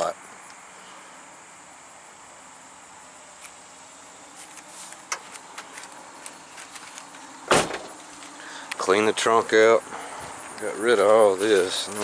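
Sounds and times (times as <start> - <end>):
light clicks and rustles: 4.4 - 8.8.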